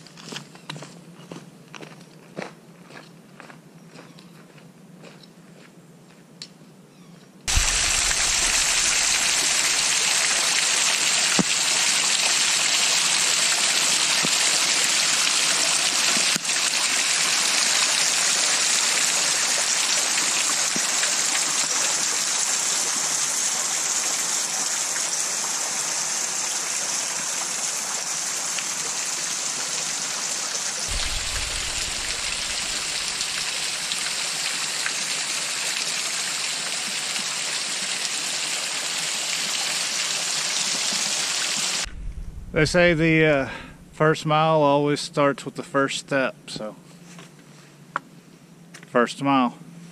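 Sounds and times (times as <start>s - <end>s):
rushing stream water: 7.5s - 41.9s.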